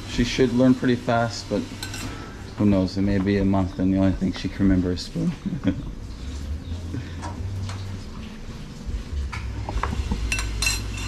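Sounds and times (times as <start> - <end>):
utensils tapping cookware: 1.8 - 2.2, 9.3 - 11.0.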